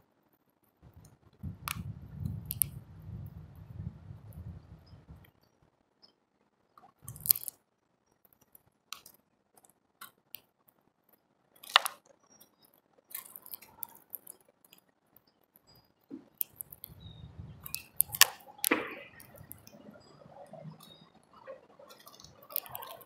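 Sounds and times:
birds cracking seeds: 0.9 - 3.6, 6.8 - 7.6, 11.6 - 23.0.

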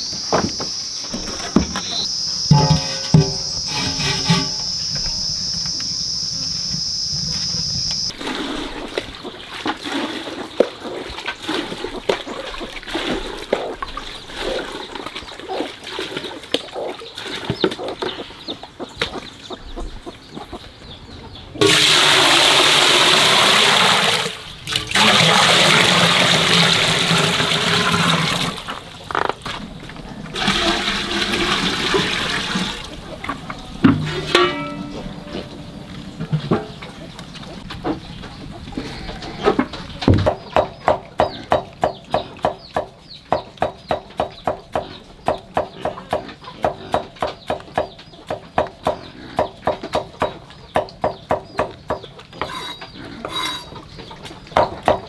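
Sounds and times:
insects trilling: 0.0 - 8.2.

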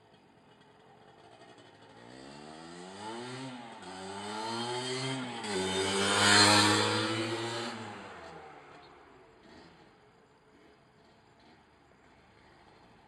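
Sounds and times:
two-stroke motorcycle riding by: 0.0 - 13.0.

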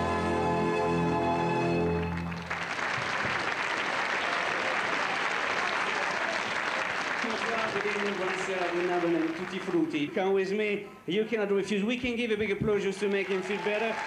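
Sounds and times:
show music held chord: 0.0 - 2.4
audience applause: 1.9 - 10.1, 12.7 - 14.0.

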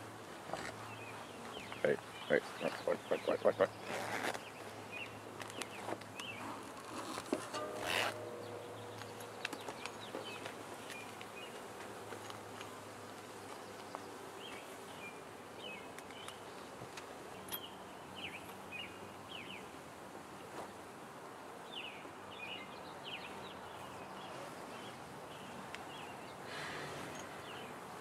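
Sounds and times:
bird chirping: 7.6 - 11.6.

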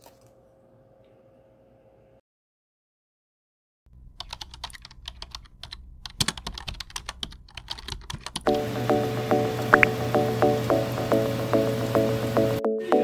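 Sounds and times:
computer keyboard typing: 4.2 - 8.5
music: 8.5 - 13.0.

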